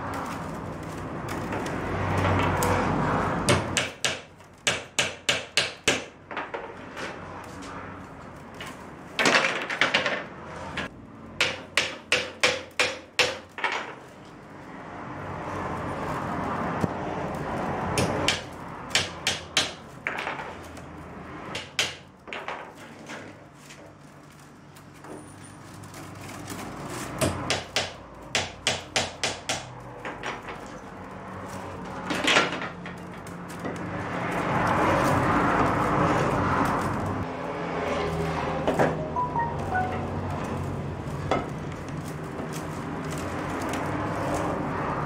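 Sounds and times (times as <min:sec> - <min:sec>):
willow rods rustling and scraping: 0:00.0 - 0:03.5, 0:06.3 - 0:10.9, 0:13.4 - 0:19.0, 0:19.8 - 0:28.2, 0:29.7 - 0:45.0
sharp wooden knocks: 0:03.4 - 0:06.8, 0:09.2 - 0:14.0, 0:17.9 - 0:20.6, 0:21.5 - 0:22.7, 0:27.2 - 0:30.7.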